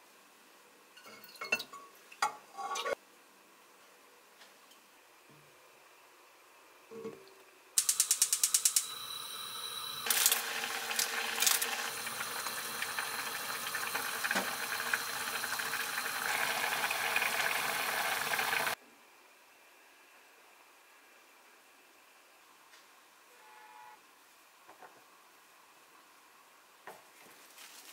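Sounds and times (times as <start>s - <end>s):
gas burner hissing: 7.8s - 18.8s.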